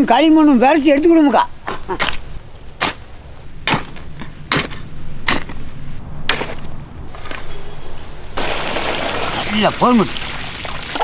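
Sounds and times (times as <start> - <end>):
steady rushing noise: 0.0 - 10.6
digging tool chopping into soil: 2.8 - 3.0, 3.6 - 5.6, 6.3 - 6.7.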